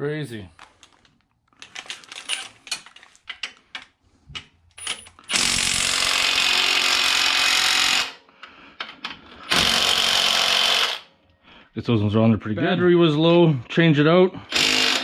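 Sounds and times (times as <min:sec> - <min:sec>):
impact wrench running: 0:04.9 - 0:08.2, 0:09.5 - 0:11.1, 0:14.5 - 0:15.0.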